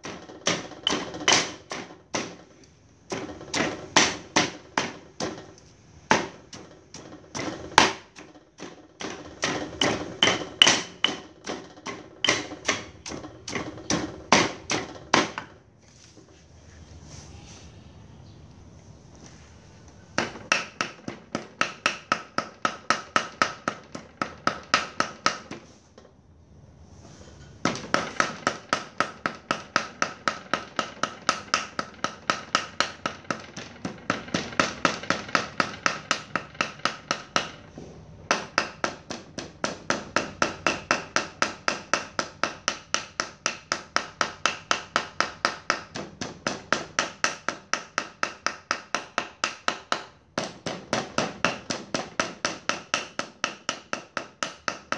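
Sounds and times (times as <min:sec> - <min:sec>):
knife chopping on wooden block: 0:00.0 - 0:02.4, 0:03.1 - 0:15.6, 0:20.2 - 0:25.8.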